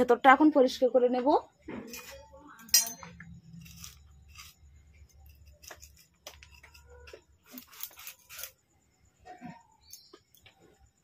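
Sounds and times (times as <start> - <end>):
knife scraping papaya: 3.5 - 8.7.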